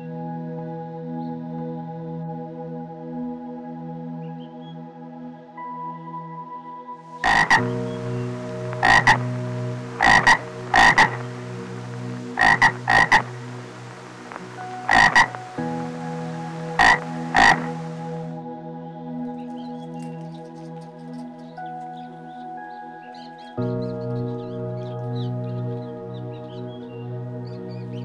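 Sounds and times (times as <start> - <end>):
frogs croaking: 7.2 - 18.4
steady hiss: 7.2 - 18.4.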